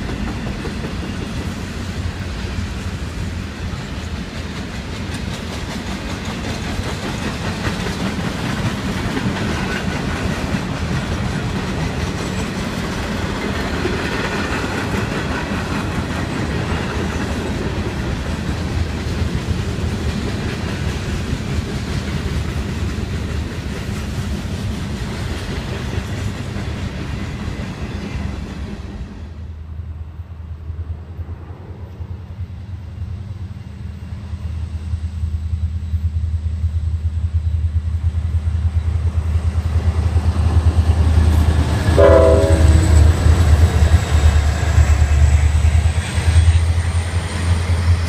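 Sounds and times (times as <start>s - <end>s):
freight train wheels clattering: 0.0s - 29.3s, 38.0s - 48.0s.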